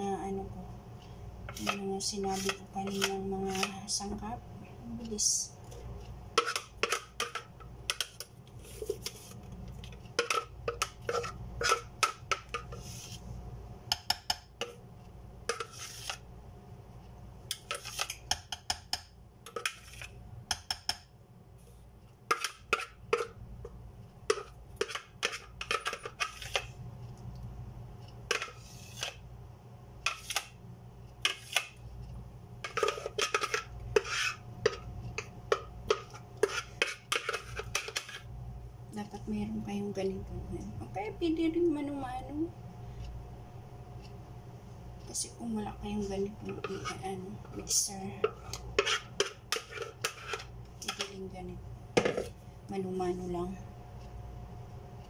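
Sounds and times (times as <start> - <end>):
spoon scraping and tapping bowl: 1.5 - 3.8, 6.4 - 9.2, 9.8 - 12.9, 13.9 - 14.8, 15.5 - 16.2, 17.5 - 21.1, 22.3 - 26.7, 28.3 - 29.2, 30.0 - 30.5, 31.2 - 31.8, 32.6 - 38.3, 46.4 - 51.2.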